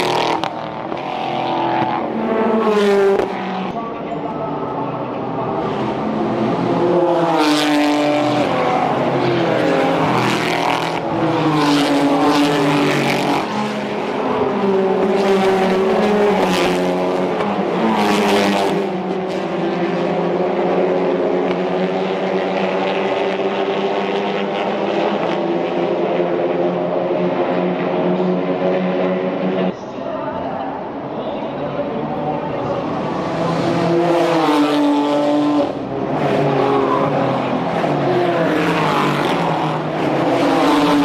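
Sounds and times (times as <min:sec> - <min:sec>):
race car engines: 0:00.0 - 0:41.0
race car passing close: 0:04.9 - 0:29.7.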